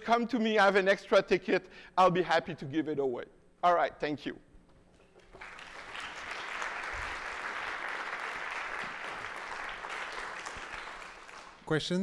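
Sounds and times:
audience applauding: 0:05.0 - 0:11.7.

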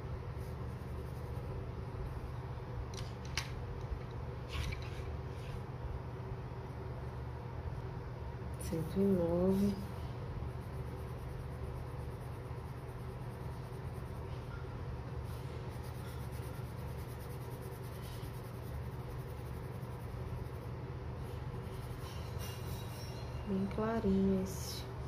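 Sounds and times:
low steady hum: 0:00.0 - 0:25.0
pencil scratching on paper: 0:08.8 - 0:14.6, 0:15.2 - 0:23.2.

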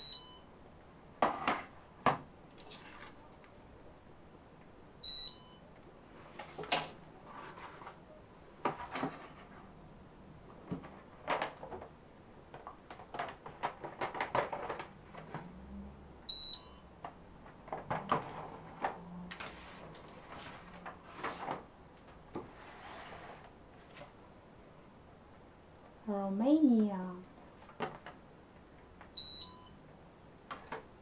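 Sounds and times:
barcode scanner beep: 0:00.0 - 0:00.5, 0:05.0 - 0:05.6, 0:16.3 - 0:16.9, 0:29.2 - 0:29.8
boxes and papers handled on desk: 0:06.1 - 0:09.8, 0:10.6 - 0:15.6, 0:17.0 - 0:24.2.

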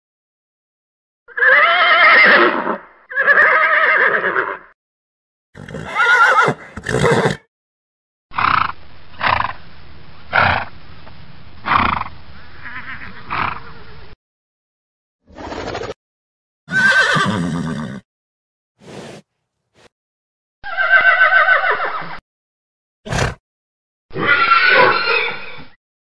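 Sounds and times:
horse whinnying: 0:01.3 - 0:04.7, 0:05.6 - 0:07.4, 0:16.7 - 0:18.0, 0:20.6 - 0:22.2, 0:24.1 - 0:25.7.

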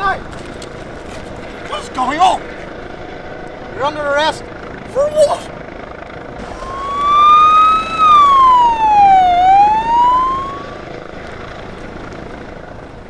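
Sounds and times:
police siren wailing: 0:06.4 - 0:10.9.

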